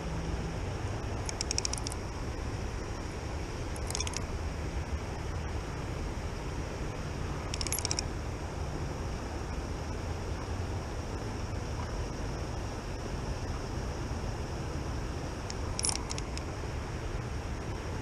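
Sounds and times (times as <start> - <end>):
wind: 0.0 - 18.0
spinning reel clicking: 1.1 - 2.0, 3.7 - 4.3, 7.5 - 8.1, 15.5 - 16.5.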